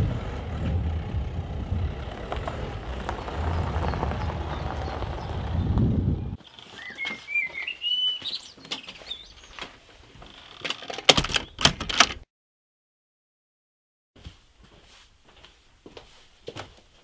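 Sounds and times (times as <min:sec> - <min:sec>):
car engine rumbling: 0:00.0 - 0:06.4
songbird warbling: 0:06.4 - 0:09.6
wooden door shutting and latching: 0:10.6 - 0:12.2.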